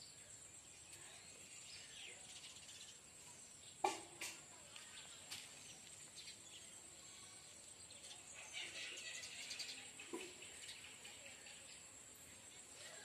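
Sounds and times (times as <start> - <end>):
bird chirps: 7.9 - 11.9.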